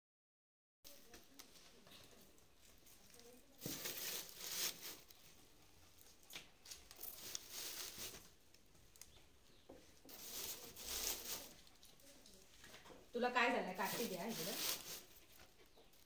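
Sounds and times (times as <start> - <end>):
straw rustling in cardboard box: 0.9 - 5.7, 6.6 - 8.6, 10.0 - 12.8, 13.4 - 16.0.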